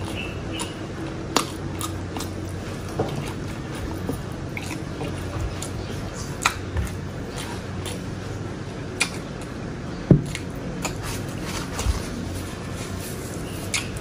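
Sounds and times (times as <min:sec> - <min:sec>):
wet chewing and lip smacks: 0:00.0 - 0:09.6, 0:13.5 - 0:14.0
steady low hum: 0:00.0 - 0:14.0.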